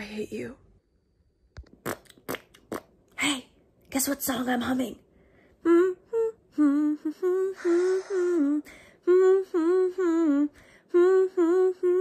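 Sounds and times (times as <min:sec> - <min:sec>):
woman humming a tune: 0:05.6 - 0:12.0.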